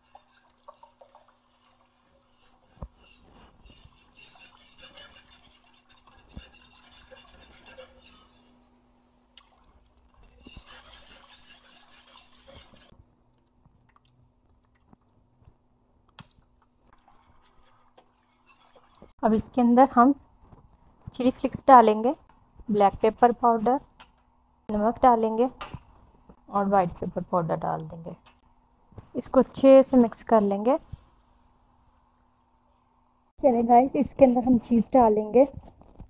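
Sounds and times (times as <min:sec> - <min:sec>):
whisk swishing and scraping pan: 0:00.0 - 0:08.6, 0:10.0 - 0:13.0, 0:17.0 - 0:19.2.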